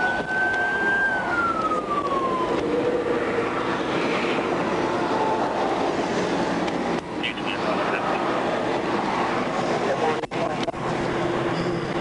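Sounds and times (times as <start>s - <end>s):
police siren wailing: 0.0s - 6.0s
rushing noise: 0.0s - 12.0s.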